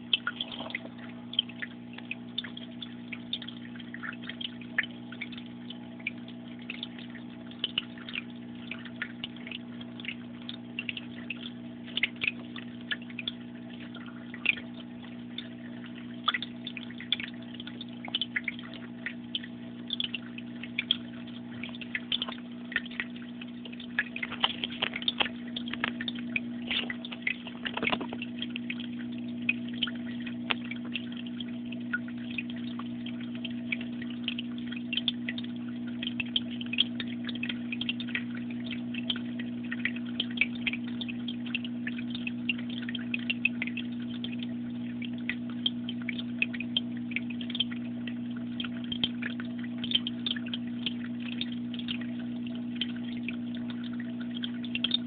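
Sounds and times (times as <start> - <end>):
low electrical hum: 0.0 - 55.0
light clicks and crackles: 16.3 - 31.2.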